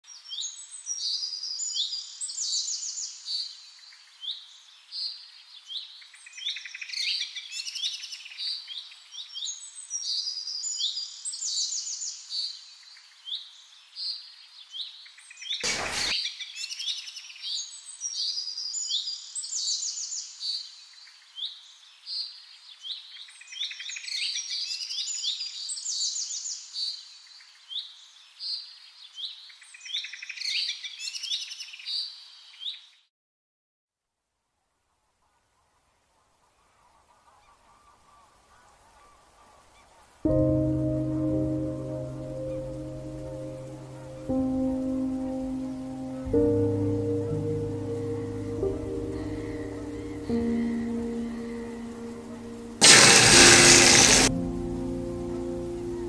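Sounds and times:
small birds chirping: 45.5s - 52.8s.

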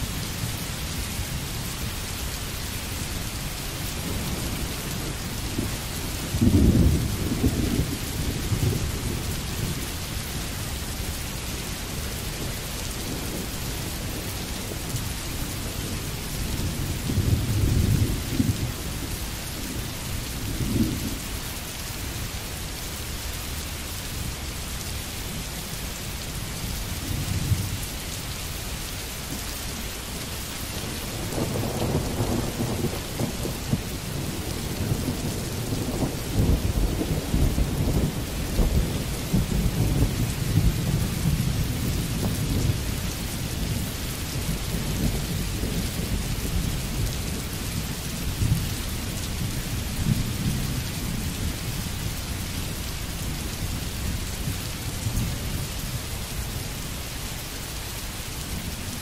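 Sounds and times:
heavy rain hissing: 0.0s - 59.0s
thunder rumbling: 4.0s - 10.4s, 30.7s - 52.0s.

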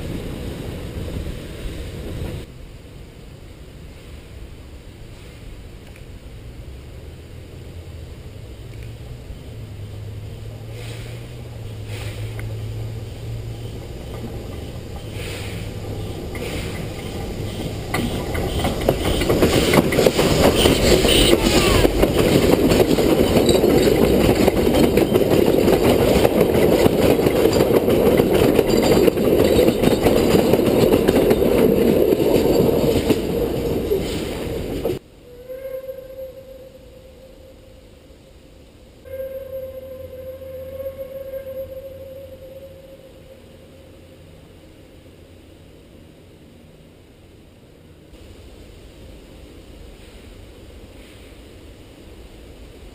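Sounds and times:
low hum of approaching train: 0.0s - 52.9s
train wheels clattering and rumbling: 9.9s - 35.0s.

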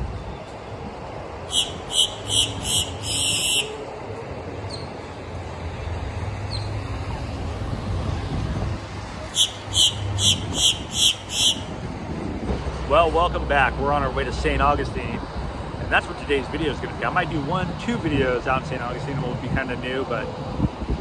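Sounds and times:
low traffic rumble: 0.0s - 21.0s
bird giving harsh high calls: 1.5s - 3.8s, 9.3s - 11.7s.

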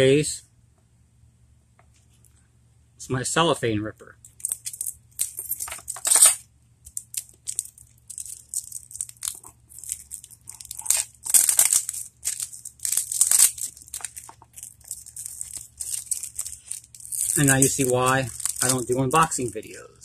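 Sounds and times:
cellophane tearing and crinkling: 4.3s - 19.8s.

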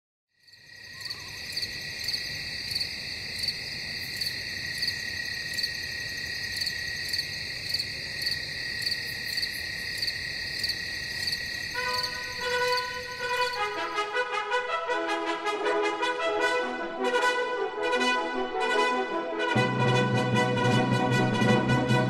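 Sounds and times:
crickets chirping: 0.4s - 14.3s.

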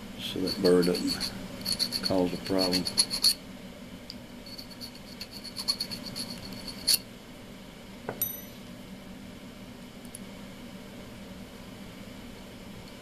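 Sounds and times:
metal file rasping in hole: 0.3s - 3.4s, 4.5s - 7.0s
sharp metallic clink: 8.2s - 8.6s.

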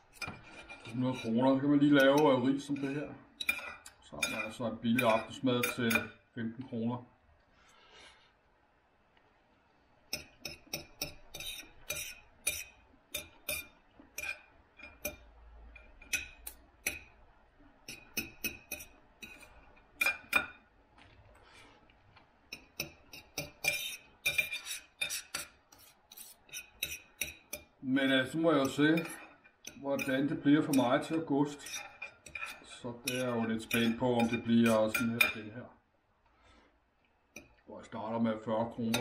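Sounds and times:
cutlery scraping on plate: 0.0s - 6.2s, 10.1s - 17.2s, 17.9s - 20.6s, 22.5s - 35.5s.

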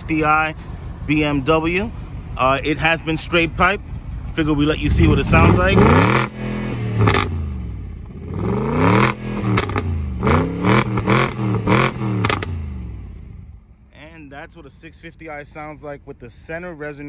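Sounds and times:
car engine revving: 2.6s - 13.7s.

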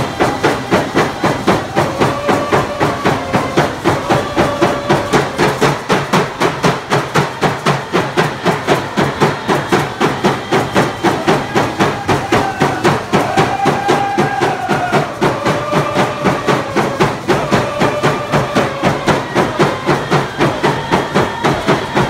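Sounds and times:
hand drums beating: 0.0s - 22.0s
voices chanting: 0.0s - 22.0s.

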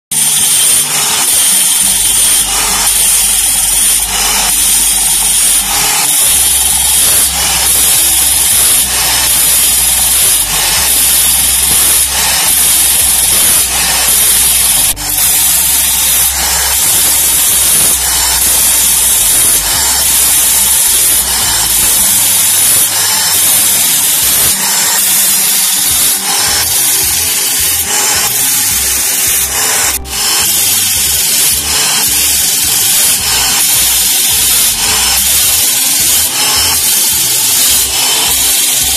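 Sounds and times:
angle grinder grinding saw teeth: 0.1s - 38.9s.

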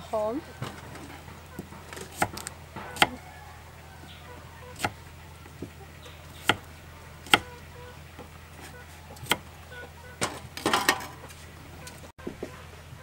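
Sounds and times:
knife chopping on wooden board: 1.6s - 3.2s, 4.7s - 5.8s, 6.4s - 6.7s, 7.3s - 7.5s, 8.2s - 9.5s.

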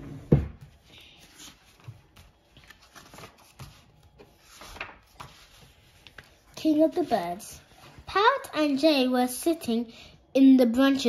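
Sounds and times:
book pages rustling: 0.6s - 8.1s.

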